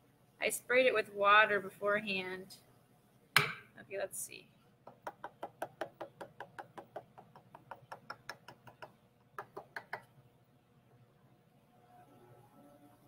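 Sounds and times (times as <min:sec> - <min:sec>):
tool knocking on clay urn: 0:04.9 - 0:10.1.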